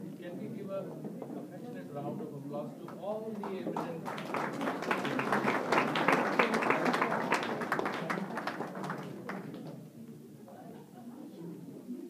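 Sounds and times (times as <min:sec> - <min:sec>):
audience applauding: 0:03.3 - 0:09.8.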